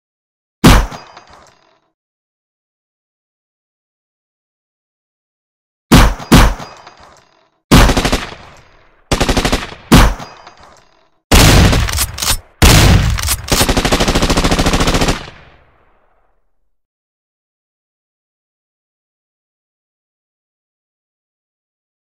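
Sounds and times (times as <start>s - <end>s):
gunfire: 0.6s - 1.4s, 5.9s - 6.9s, 7.7s - 10.5s, 11.3s - 15.9s.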